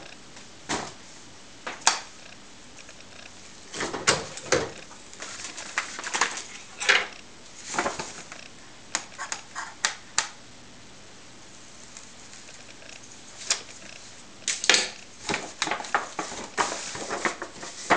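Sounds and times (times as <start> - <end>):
faint steady hum: 0.0 - 17.9
paper bag rustling and crackling: 3.6 - 6.8, 7.6 - 8.4, 15.1 - 17.9.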